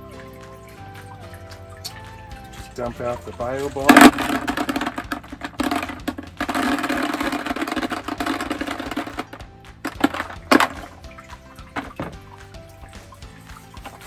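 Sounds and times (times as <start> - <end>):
plastic balls clattering into bucket: 2.0 - 12.7.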